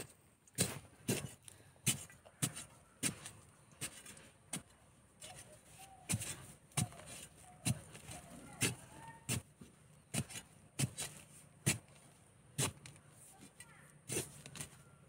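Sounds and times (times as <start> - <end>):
metal digging tool striking stony soil: 6.1 - 9.5, 10.1 - 12.0, 12.6 - 12.9, 13.6 - 14.7.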